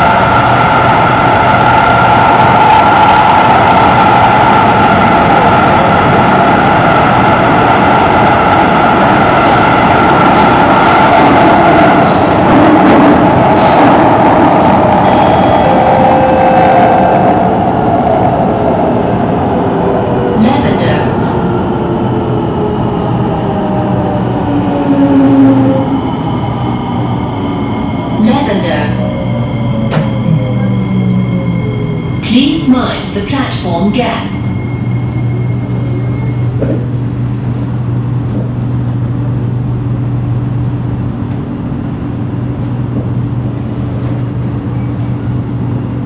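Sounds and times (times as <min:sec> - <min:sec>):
train rumbling: 0:00.0 - 0:46.0
high-pitched whine: 0:24.2 - 0:36.9.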